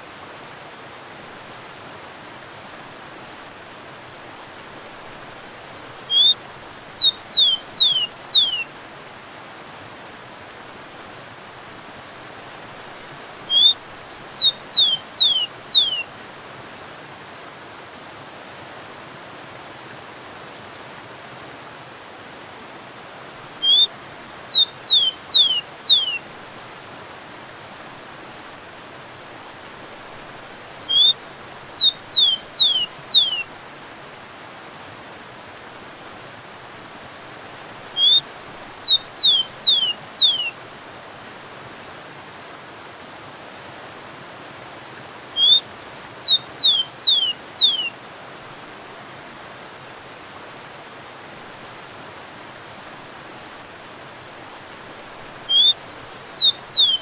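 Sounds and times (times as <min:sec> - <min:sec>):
sparrow singing whistles: 0:06.1 - 0:08.6, 0:13.5 - 0:16.0, 0:23.6 - 0:26.2, 0:30.9 - 0:33.4, 0:38.0 - 0:40.5, 0:45.4 - 0:47.9, 0:55.5 - 0:57.0.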